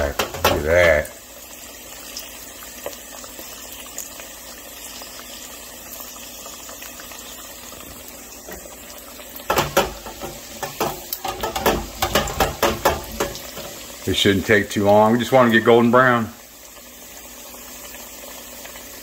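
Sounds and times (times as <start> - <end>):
fry basket crackles and knocks: 0.0 - 0.9, 9.4 - 13.9
deep fryer bubbling hiss: 0.0 - 19.0.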